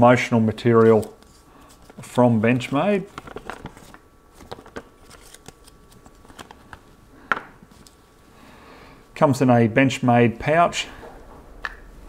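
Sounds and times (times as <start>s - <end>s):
paper rustling and crinkling: 0.6s - 6.9s.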